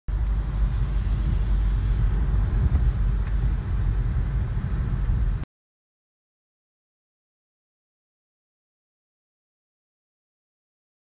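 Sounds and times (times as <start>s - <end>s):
car engine and tyre rumble: 0.1s - 5.5s.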